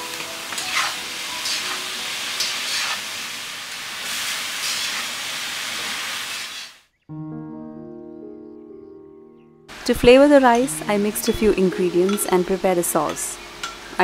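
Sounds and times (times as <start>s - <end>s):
vegetables sizzling in a pan: 0.0s - 6.8s, 9.7s - 14.0s
spatula scraping a pan: 0.7s - 1.7s, 2.4s - 3.0s.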